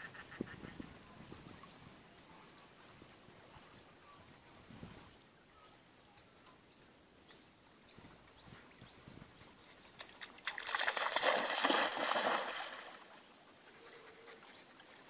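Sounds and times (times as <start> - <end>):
dog splashing through water: 9.8 - 13.3.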